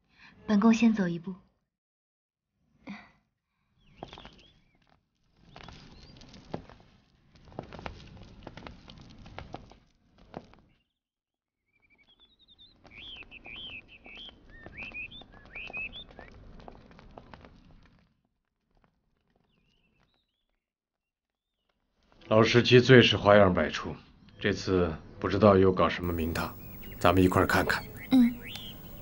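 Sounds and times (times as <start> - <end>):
small birds chirping: 3.8 - 6.4, 11.8 - 16.8, 26.0 - 29.0
soft footsteps: 26.0 - 29.0.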